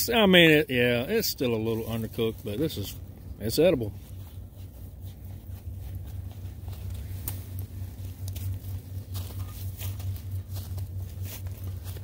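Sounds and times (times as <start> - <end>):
campfire crackling: 0.0 - 12.0
low rumble: 0.0 - 12.0.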